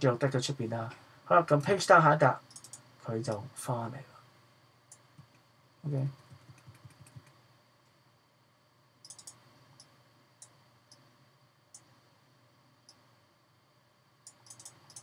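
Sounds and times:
faint computer mouse clicks: 2.5s - 3.4s, 9.0s - 11.0s, 14.2s - 15.0s.

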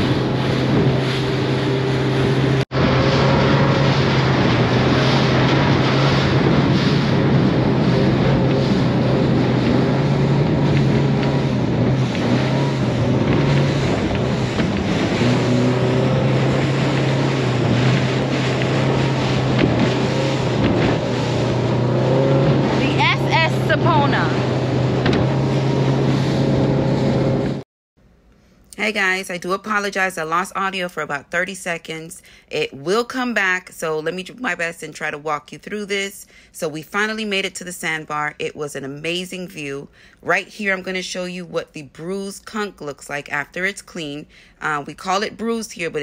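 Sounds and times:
boat engine drone: 0.0s - 27.6s
water rushing past hull: 0.0s - 27.6s
wind buffeting microphone: 0.0s - 27.6s.

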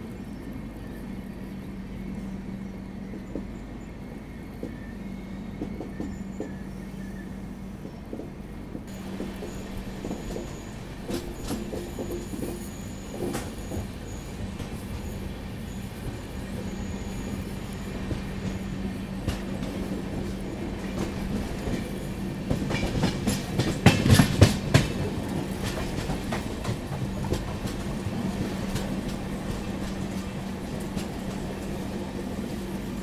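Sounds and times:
train rumbling on track: 0.0s - 33.0s
wheel clacks over rail joints: 7.8s - 14.0s, 19.2s - 31.6s.

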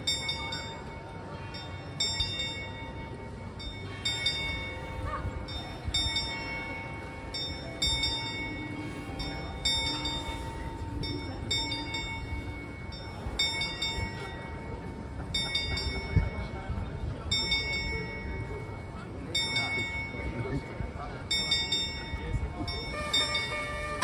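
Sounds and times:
clock bell strokes: 0.0s - 16.6s, 17.3s - 24.0s.

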